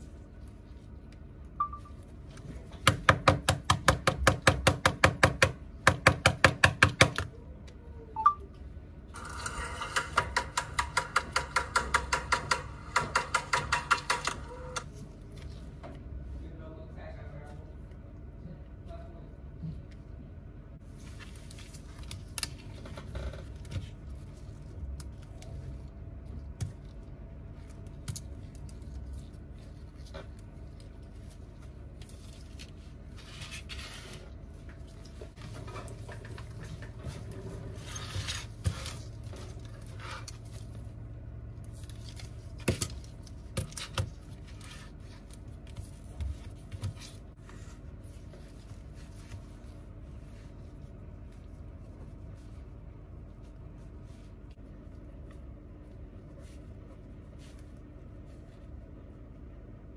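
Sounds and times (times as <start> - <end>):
steady low hum: 0.0 - 59.9
tool scraping: 9.2 - 14.8
hand tools clicking and tapping: 10.0 - 14.5.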